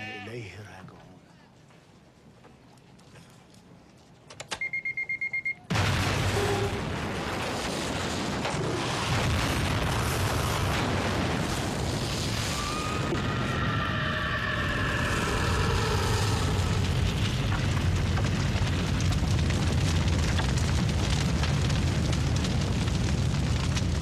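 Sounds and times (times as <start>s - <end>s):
bomb explosion rumbling: 5.7s - 13.6s, 14.6s - 24.0s.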